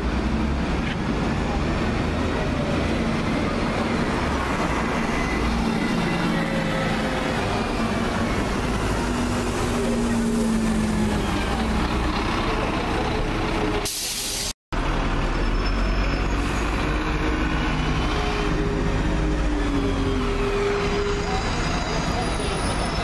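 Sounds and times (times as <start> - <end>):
bus engines passing: 0.0 - 23.0
air brake hiss: 13.8 - 14.5.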